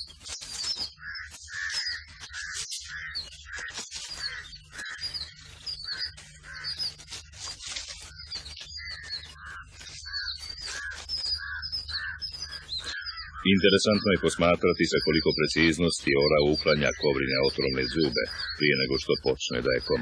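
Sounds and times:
birds chirping: 0.0 - 20.0
steady low hum: 4.2 - 20.0.

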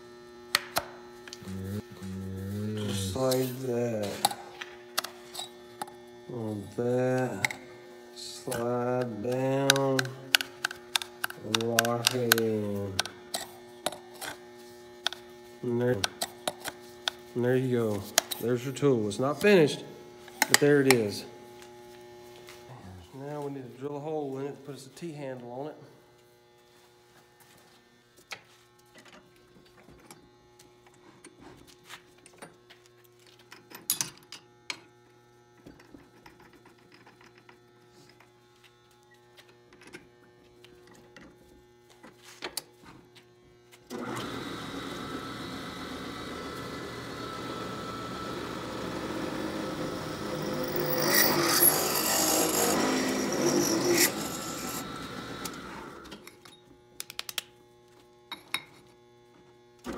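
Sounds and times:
drill cutting metal tube: 43.9 - 56.1
drill press running: 43.9 - 56.3
drill squealing: 48.2 - 55.9.

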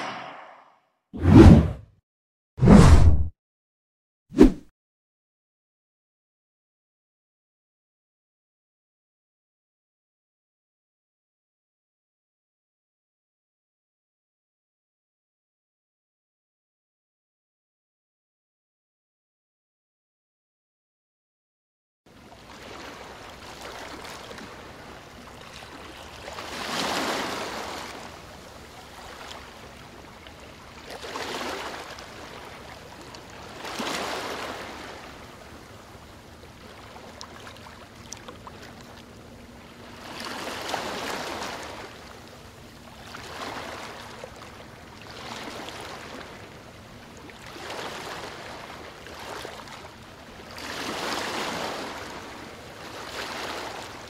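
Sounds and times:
small waves breaking on shore: 22.2 - 54.0
faint steady hum: 34.4 - 50.6.

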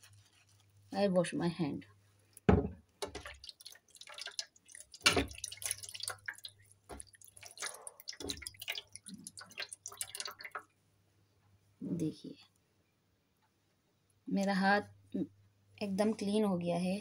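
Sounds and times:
water dripping: 2.3 - 10.8
thumps: 2.5 - 3.2
hands splashing in water: 3.0 - 10.6.

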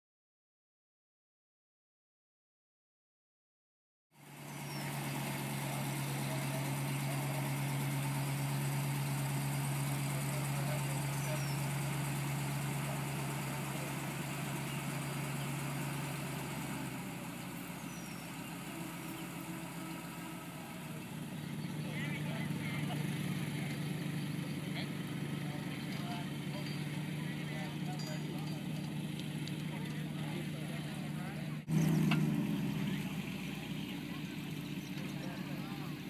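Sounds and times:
engine idling low hum: 4.2 - 36.0.

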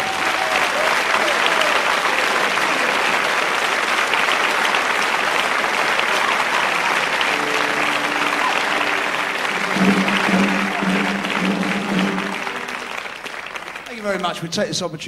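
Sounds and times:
audience applauding: 0.0 - 14.8
faint held note: 7.3 - 13.3.

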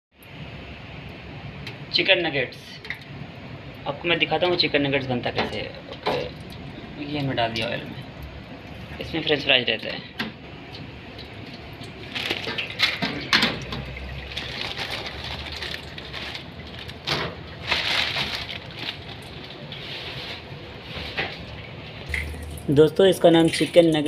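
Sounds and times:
oil sizzling in deep fryer: 10.6 - 17.8.

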